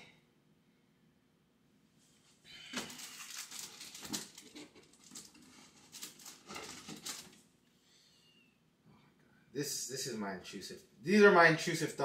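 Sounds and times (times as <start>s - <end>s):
packaging crinkling and rustling: 2.6s - 7.5s.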